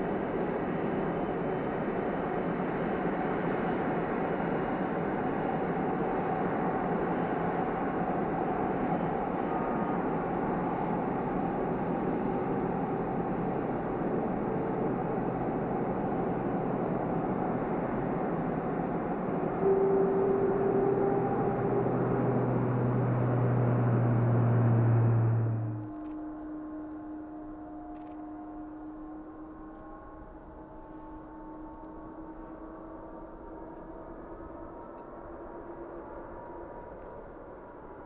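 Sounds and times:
jet engines rumbling and hissing: 0:00.0 - 0:28.6
steady whine: 0:00.0 - 0:38.0.

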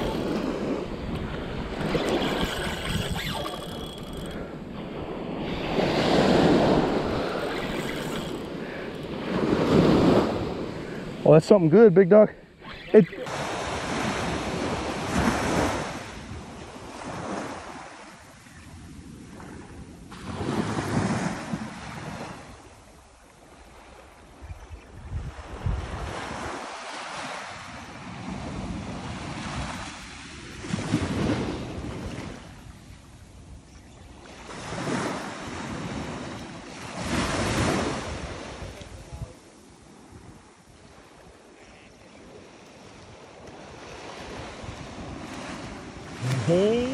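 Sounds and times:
ocean surf breaking on beach: 0:00.0 - 0:02.6, 0:42.2 - 0:46.9.

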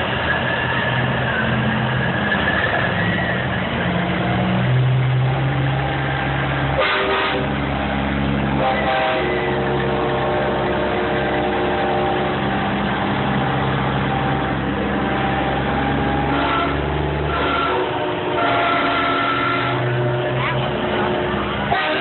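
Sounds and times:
diesel truck engines running: 0:00.0 - 0:22.0.

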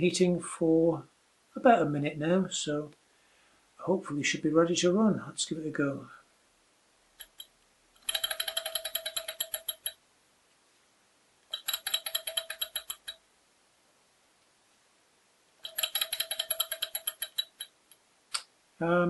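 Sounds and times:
rapid metallic clicking engine: 0:08.0 - 0:09.9, 0:11.6 - 0:13.2, 0:15.6 - 0:17.7.

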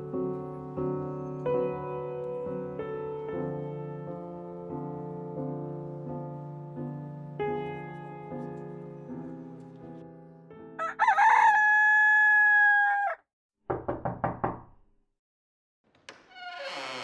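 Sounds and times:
soft piano music: 0:00.0 - 0:12.3
rooster crowing: 0:10.8 - 0:13.2.

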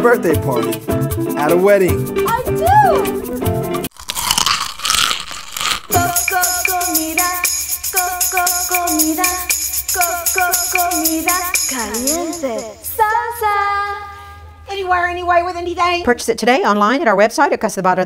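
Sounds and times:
upbeat background music: 0:00.0 - 0:03.9, 0:05.9 - 0:13.0.

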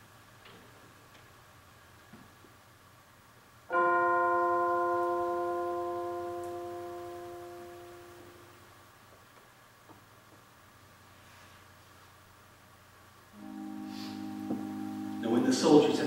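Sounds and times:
bell ringing: 0:03.7 - 0:08.4.

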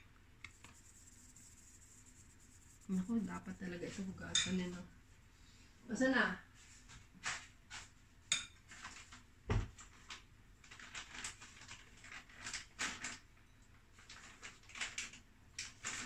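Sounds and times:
spoon clinking on ceramic bowls: 0:04.3 - 0:04.6, 0:08.3 - 0:08.6.

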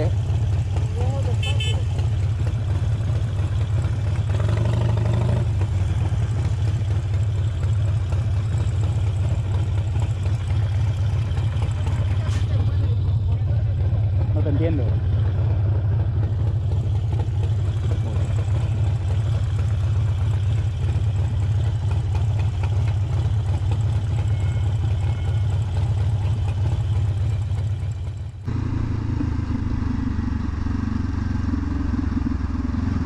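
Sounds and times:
motorcycle engine low rumble: 0:00.0 - 0:33.0
motorcycle engine rough high note: 0:01.0 - 0:02.3, 0:23.7 - 0:27.6, 0:28.5 - 0:33.0.

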